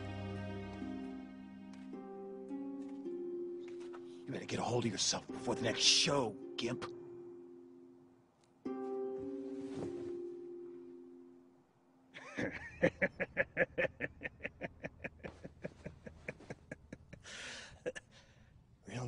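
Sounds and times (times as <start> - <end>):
man laughing hard: 12.2 - 18.0
breathy sound: 17.2 - 18.6.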